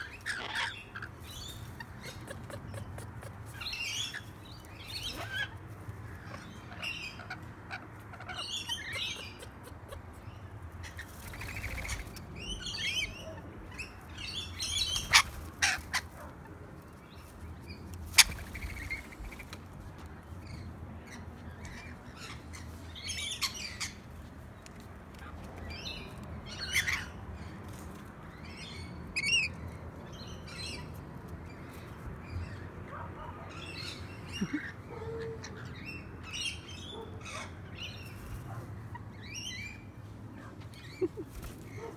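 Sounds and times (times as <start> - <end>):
lorikeets chattering: 8.2 - 13.2.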